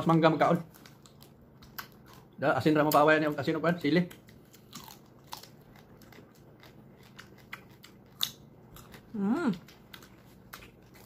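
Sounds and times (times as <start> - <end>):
crunchy bites and chewing: 4.1 - 11.0.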